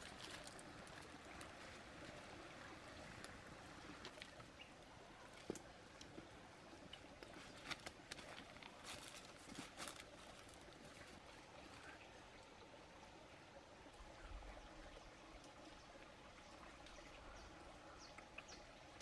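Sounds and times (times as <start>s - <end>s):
faint outdoor hiss: 0.0s - 19.0s.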